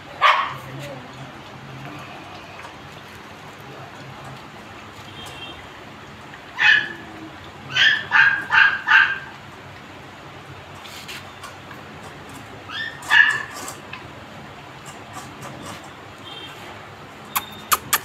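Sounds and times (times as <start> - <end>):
puppies yelping: 7.7 - 9.3, 12.7 - 13.5.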